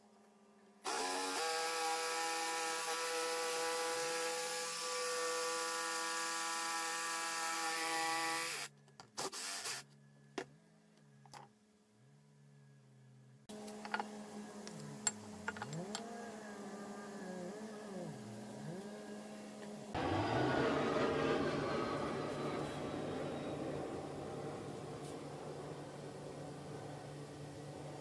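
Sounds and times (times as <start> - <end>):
jigsaw cutting a board: 0.9 - 9.8.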